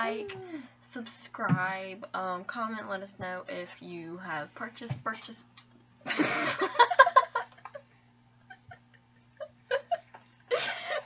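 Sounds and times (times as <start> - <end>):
women giggling and laughing: 6.0 - 11.0.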